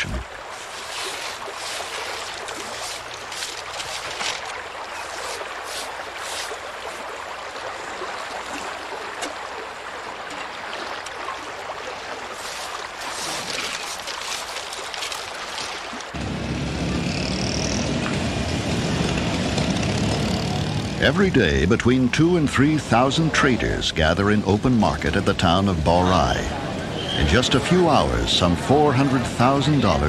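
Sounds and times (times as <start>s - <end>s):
small water splashes: 0.0s - 16.2s
river water sloshing and trickling: 0.0s - 20.9s
gravel washed through sieves: 0.4s - 7.1s, 12.2s - 16.2s.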